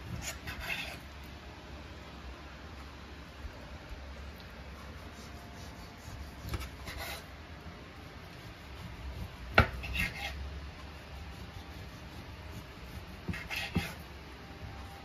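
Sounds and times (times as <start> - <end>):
knife scraping on cutting board: 0.0 - 1.0, 4.8 - 7.3, 8.3 - 14.1
low steady hum: 0.0 - 15.0.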